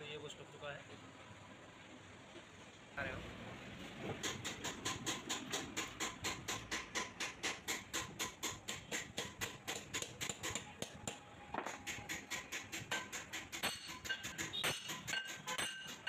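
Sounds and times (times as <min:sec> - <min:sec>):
hammer tapping metal: 0:04.2 - 0:16.0.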